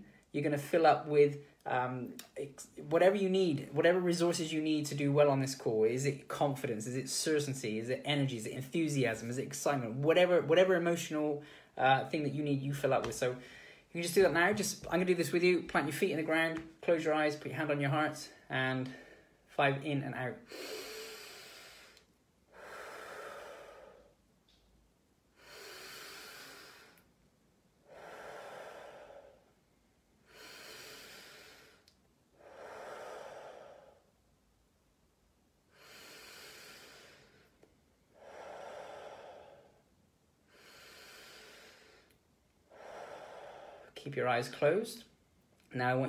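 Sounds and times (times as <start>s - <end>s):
man breathing deeply: 11.4s - 11.8s, 13.4s - 13.9s, 20.4s - 24.3s, 25.3s - 34.2s, 35.7s - 44.0s.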